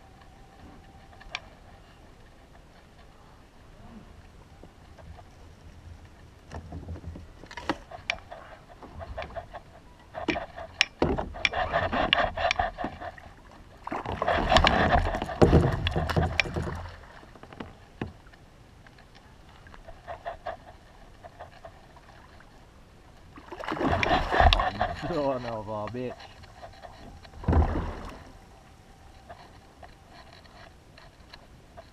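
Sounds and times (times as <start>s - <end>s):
sharp clicks and knocks: 14.4s - 16.9s.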